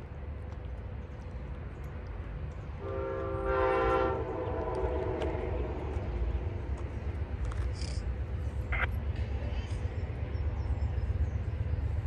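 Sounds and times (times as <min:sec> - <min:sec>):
train horn blast: 0:02.8 - 0:05.8.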